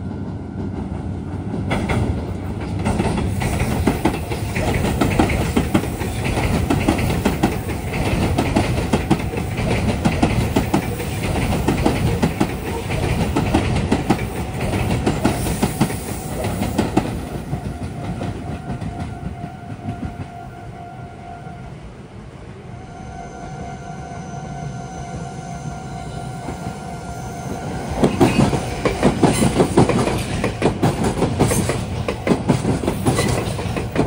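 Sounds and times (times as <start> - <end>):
train rumble: 0.0 - 34.0
train wheels clacking over rail joints: 0.6 - 20.2, 28.0 - 34.0.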